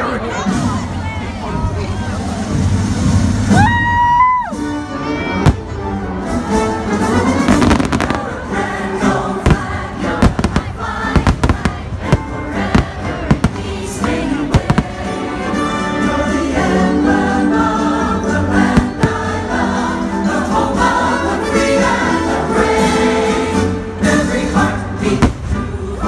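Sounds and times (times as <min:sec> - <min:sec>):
show music with singing: 0:00.0 - 0:26.0
fireworks bursting: 0:07.3 - 0:15.6, 0:18.6 - 0:19.9, 0:25.1 - 0:26.0.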